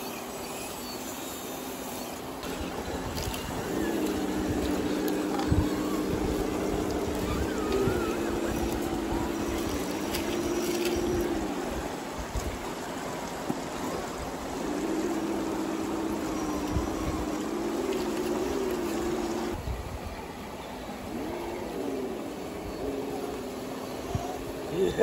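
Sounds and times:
flowing water: 0:00.0 - 0:25.0
electric motors whining: 0:01.6 - 0:19.6.

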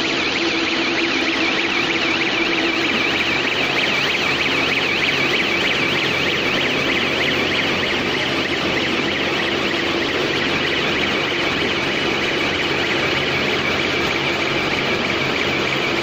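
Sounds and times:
electronic alarm warbling: 0:00.0 - 0:16.0.

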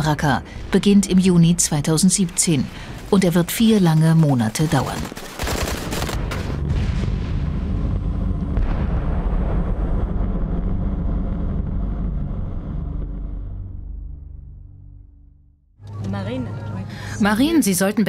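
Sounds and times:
gunshots: 0:04.7 - 0:06.7
explosion rumble: 0:06.2 - 0:15.6.

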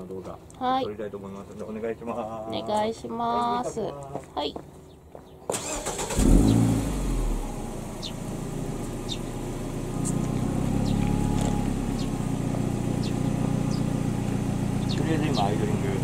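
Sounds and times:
car engine starting and idling: 0:05.5 - 0:16.0.

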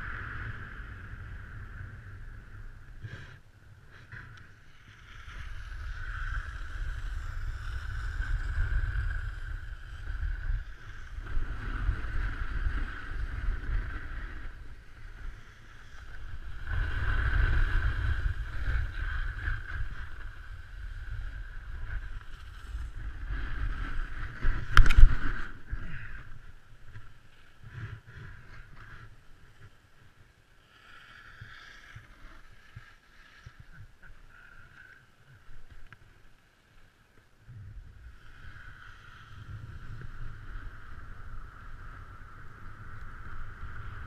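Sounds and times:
wind rumbling on microphone: 0:00.0 - 0:44.0
snowboard scraping over snow: 0:04.0 - 0:26.5.

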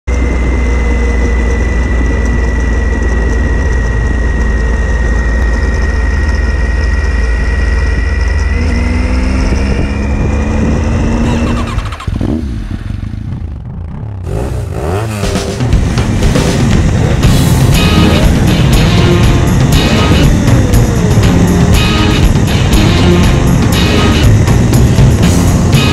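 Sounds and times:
motorcycle engine running: 0:00.0 - 0:25.9
wind rush on microphone: 0:07.1 - 0:13.6.

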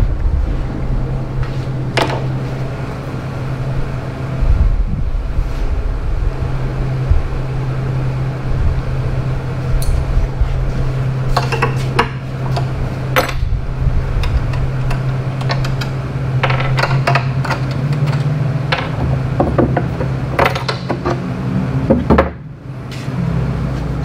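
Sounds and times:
shop machinery humming: 0:00.0 - 0:24.0.

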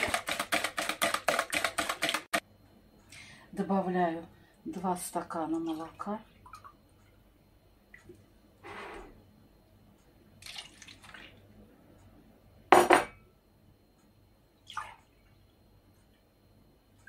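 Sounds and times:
milk pouring: 0:10.4 - 0:11.4.

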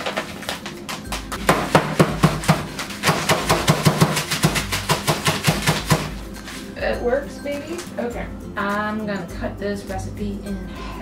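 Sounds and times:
rapid knocks breaking sugar: 0:01.0 - 0:06.3.

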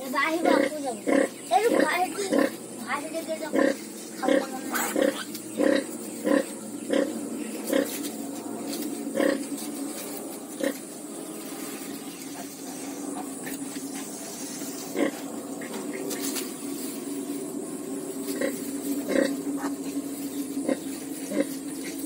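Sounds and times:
pigs grunting: 0:00.3 - 0:08.2, 0:09.0 - 0:09.7, 0:10.5 - 0:10.9, 0:14.6 - 0:16.4, 0:17.4 - 0:22.0.

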